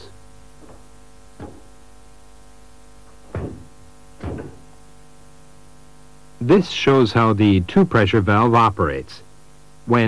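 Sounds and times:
steady hum: 0.0s - 10.0s
short mechanical knocks: 0.6s - 1.9s, 3.0s - 4.8s.

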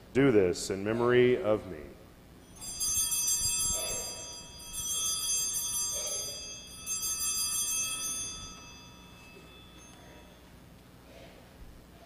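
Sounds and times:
small bells jingling: 2.4s - 10.7s.

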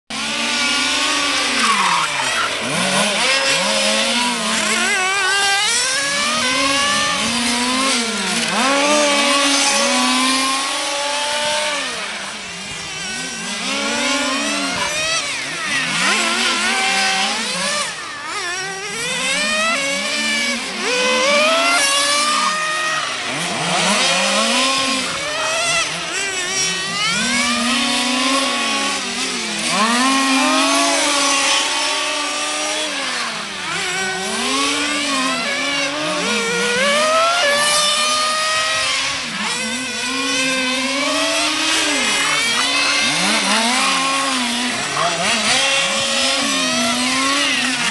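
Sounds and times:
small engines revving: 0.1s - 47.9s.

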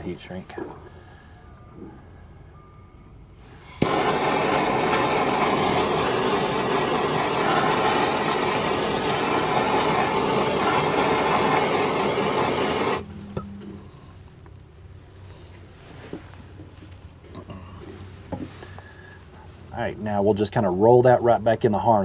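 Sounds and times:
gas torch hissing: 3.6s - 13.1s
gas torch ignition click: 3.6s - 13.1s.

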